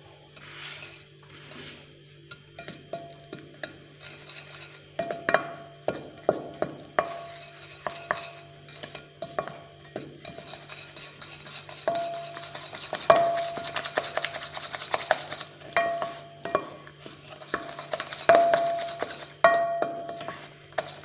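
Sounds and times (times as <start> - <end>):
wooden spoon beating in bowl: 11.5 - 16.8, 17.4 - 21.0.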